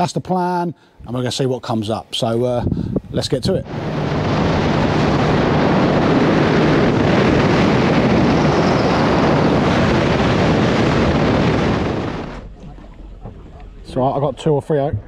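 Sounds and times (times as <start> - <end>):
rush of wind and water: 2.5 - 15.0
motorboat engine drone: 3.6 - 14.2.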